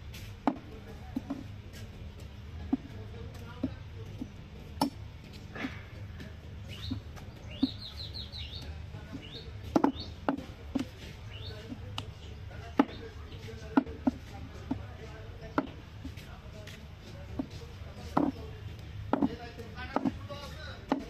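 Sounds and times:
bird chirping: 0:06.6 - 0:13.8
cleaver chopping meat on wood: 0:09.1 - 0:12.1, 0:12.7 - 0:13.1, 0:13.7 - 0:14.8, 0:18.1 - 0:18.4, 0:19.1 - 0:20.2.

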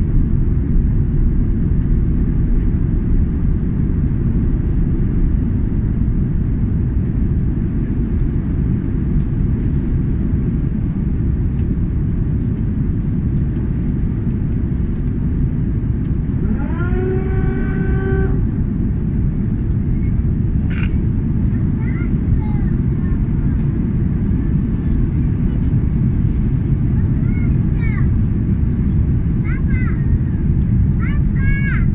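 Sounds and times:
jet cabin engine roar: 0:00.0 - 0:31.9.

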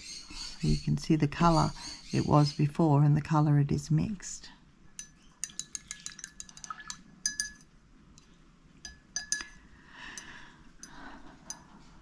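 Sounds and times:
paintbrush clinking against glass jar: 0:04.9 - 0:07.7, 0:08.8 - 0:09.6.

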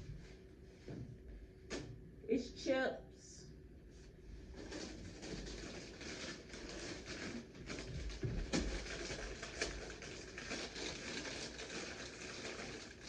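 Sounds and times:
rustling and small knocks: 0:04.5 - 0:12.8.

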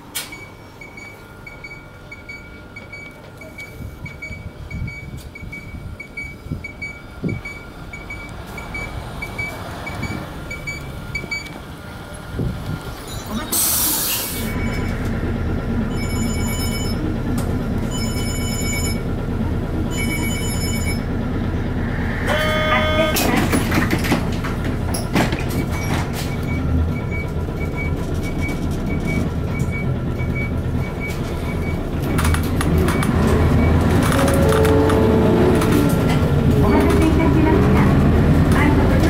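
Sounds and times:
diesel bus engine idling: 0:03.6 - 0:39.0
bus engine revving: 0:18.6 - 0:39.0.

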